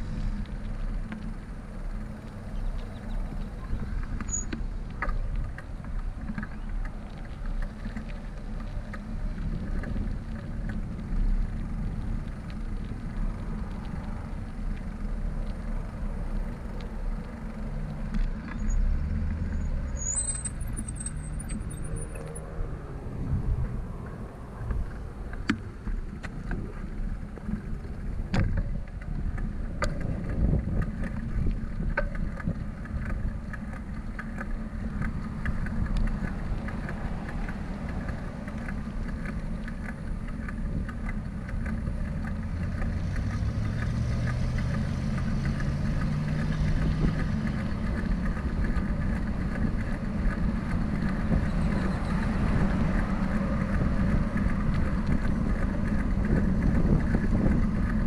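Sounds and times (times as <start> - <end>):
passing car traffic: 0.0 - 58.0
vehicle engine accelerating past: 17.7 - 25.8, 42.1 - 49.0
wind buffeting microphone: 21.6 - 58.0.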